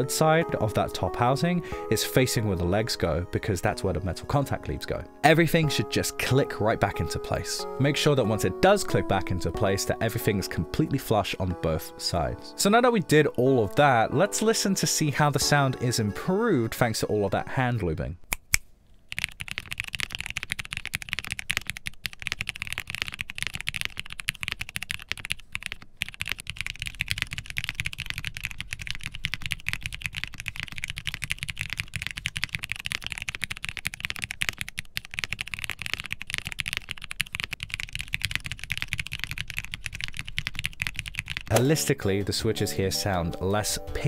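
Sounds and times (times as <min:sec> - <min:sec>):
mechanical keyboard typing: 0:19.1 - 0:41.8.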